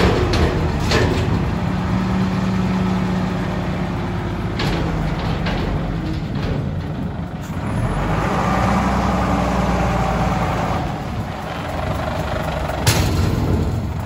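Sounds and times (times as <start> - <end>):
metal bin clanking: 0.0 - 1.8, 4.3 - 8.0, 12.7 - 14.0
diesel engine running: 0.0 - 14.0.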